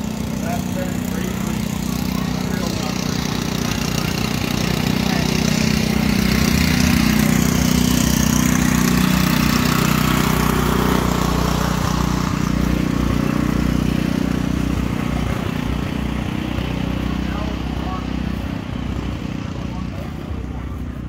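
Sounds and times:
small engine idling: 0:00.0 - 0:21.0.

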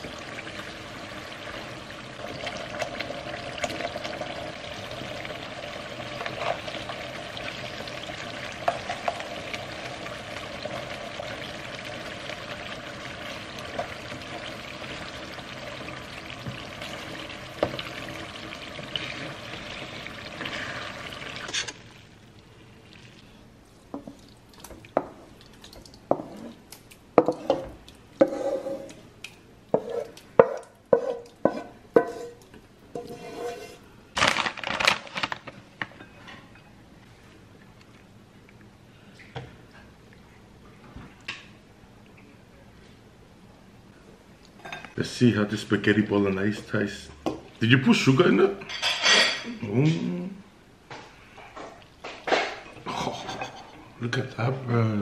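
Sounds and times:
sauce sizzling in a frying pan: 0:00.0 - 0:22.3
spoon scraping a pan: 0:27.2 - 0:29.0, 0:29.7 - 0:30.2, 0:30.9 - 0:33.8, 0:52.8 - 0:53.8.

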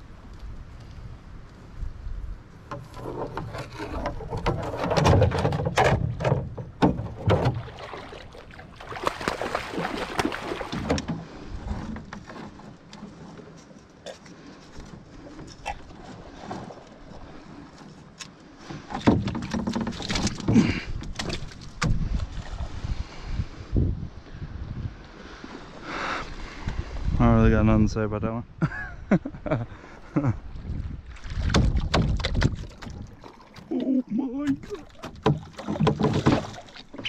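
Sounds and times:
knocks against a canoe hull: 0:02.7 - 0:07.8, 0:18.7 - 0:22.2, 0:31.4 - 0:33.1, 0:34.5 - 0:37.0
water splashing: 0:03.0 - 0:12.9, 0:31.0 - 0:37.0.

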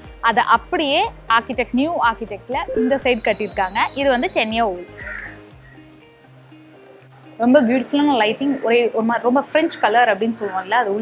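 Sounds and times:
slow held-note music: 0:02.4 - 0:08.5.

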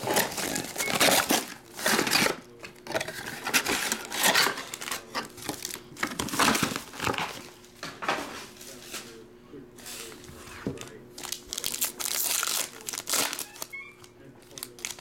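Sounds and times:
plastic wrapping crinkling: 0:00.0 - 0:07.6, 0:11.2 - 0:15.0
tearing rustles: 0:11.2 - 0:13.7, 0:14.4 - 0:15.0.

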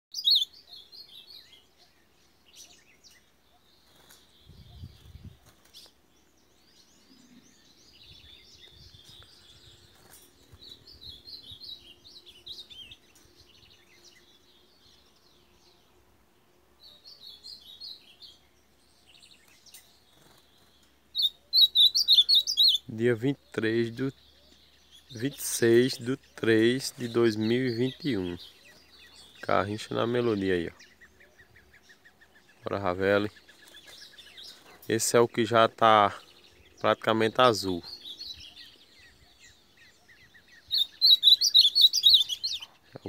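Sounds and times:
grosbeak singing warbled phrases: 0:00.1 - 0:43.0.

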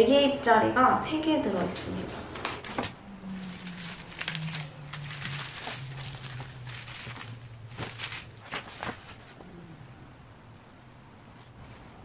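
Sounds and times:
plastic bags crinkling: 0:02.5 - 0:09.2.

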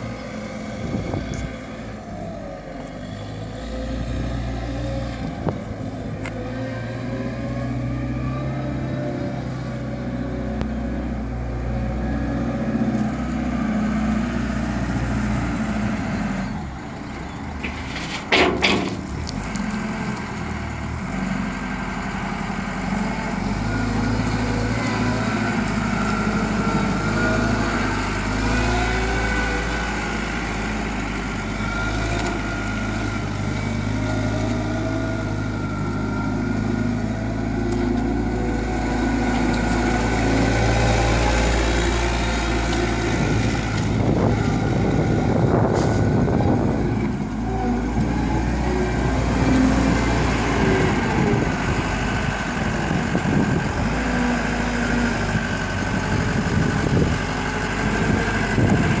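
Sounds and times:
wheel loader diesel engine: 0:00.0 - 0:59.0.

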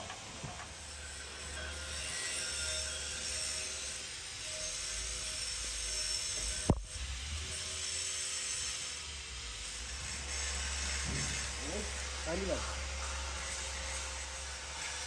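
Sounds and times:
gas torch flame hissing: 0:06.1 - 0:14.5.

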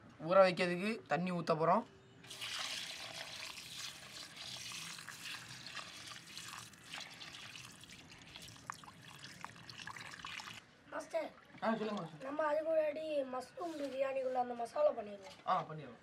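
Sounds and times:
water pouring onto rice: 0:02.3 - 0:10.6.

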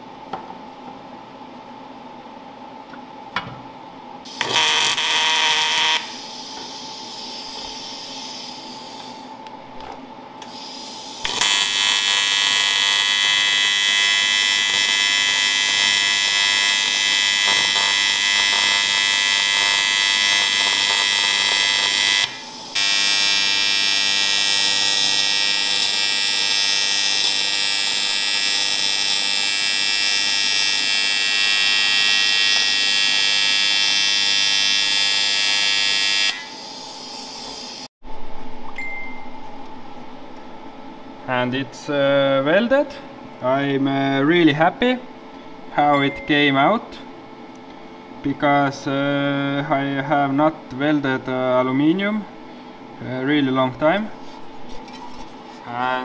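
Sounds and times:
welding arc buzzing: 0:04.2 - 0:09.4, 0:10.4 - 0:38.0.

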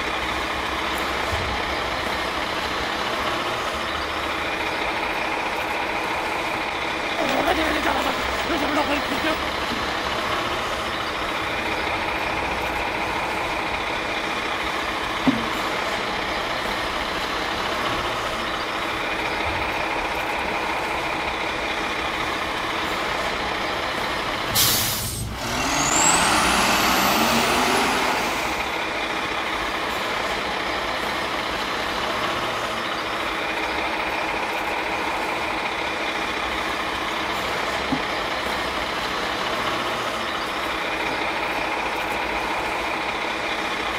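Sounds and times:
truck engine running and revving: 0:00.0 - 0:43.9
air brake burst: 0:24.5 - 0:26.8.

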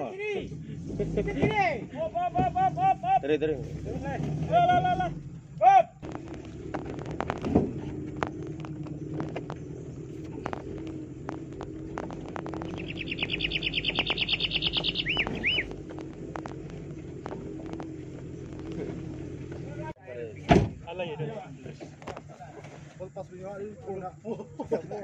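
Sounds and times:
engine running at low speed: 0:00.0 - 0:25.0
small clicks and knocks: 0:06.0 - 0:12.8
bird trilling: 0:12.4 - 0:15.9.

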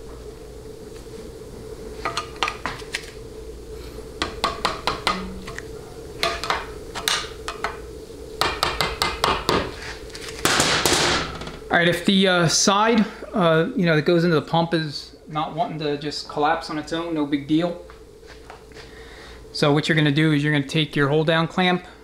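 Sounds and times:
faint hum: 0:00.0 - 0:22.0
screwdriver tapping metal pipe: 0:04.2 - 0:05.6.

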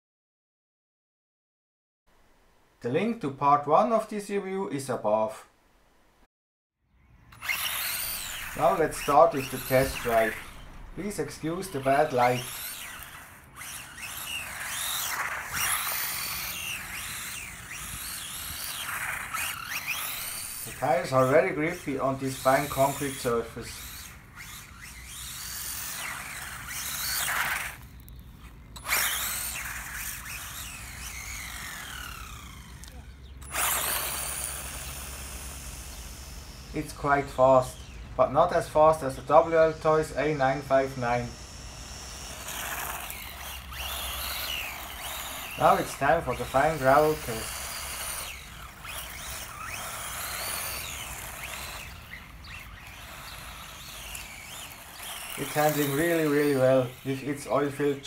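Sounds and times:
rc car electric motor whine: 0:07.3 - 0:58.0
tyres hissing on gravel: 0:07.8 - 0:13.5.

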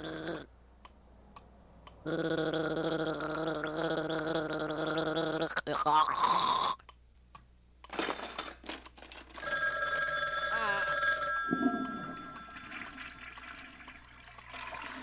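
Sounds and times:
telephone bell ringing: 0:09.4 - 0:13.7.

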